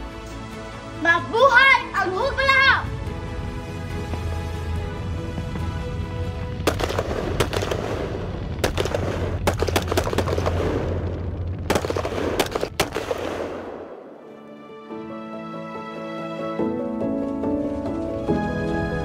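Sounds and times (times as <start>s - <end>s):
background music: 0.0s - 19.0s
automatic gunfire: 6.7s - 11.0s, 11.7s - 14.0s.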